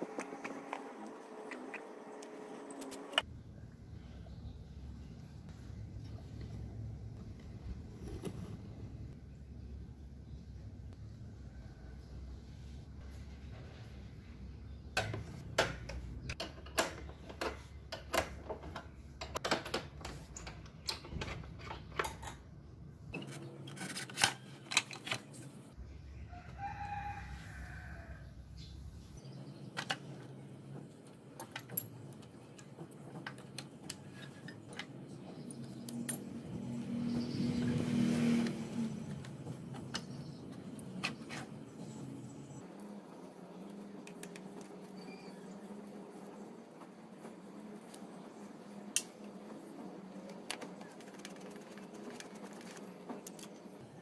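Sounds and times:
rooster crowing: 26.2 - 28.4.

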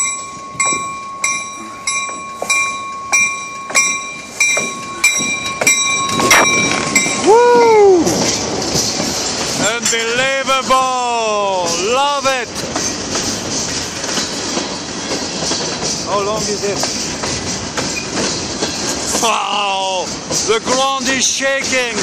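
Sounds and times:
train bell ringing: 0.0 - 10.5
freight train passing: 0.0 - 22.0
train wheels squealing: 12.8 - 22.0.

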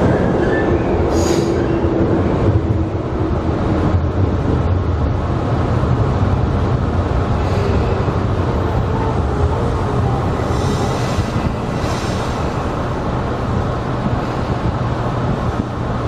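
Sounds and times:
train wheels rumbling: 0.0 - 16.0.

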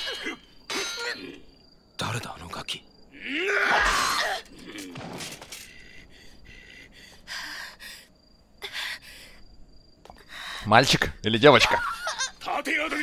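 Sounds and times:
boy gasping and whimpering: 5.7 - 9.5.

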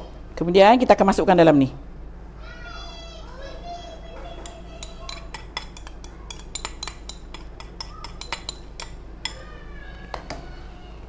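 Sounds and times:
metal spoon clinking ceramic bowl: 4.4 - 9.5.

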